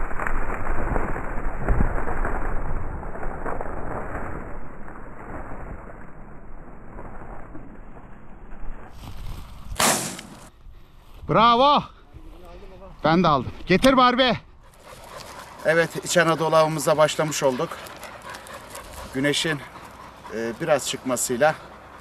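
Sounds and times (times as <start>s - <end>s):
wind noise: 0.0s - 16.8s
dry grass rustling: 8.7s - 11.4s, 14.6s - 20.8s
loud shotgun shot: 9.8s - 10.5s.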